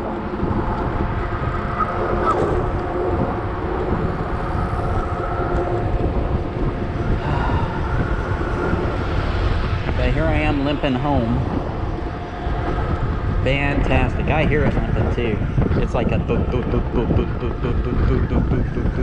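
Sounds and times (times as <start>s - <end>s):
electric bike motor whine: 0.0s - 9.9s
wind and road noise: 0.0s - 19.0s.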